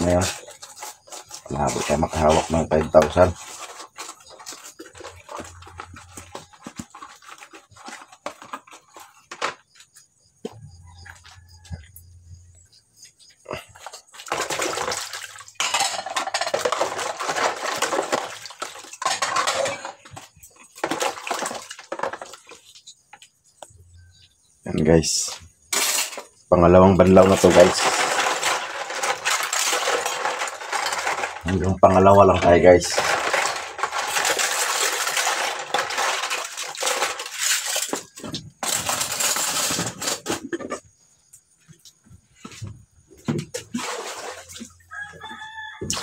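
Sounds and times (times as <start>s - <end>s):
water splashing in basin: 14.1s - 20.0s, 43.4s - 45.3s
dishes clinking: 15.6s - 17.0s.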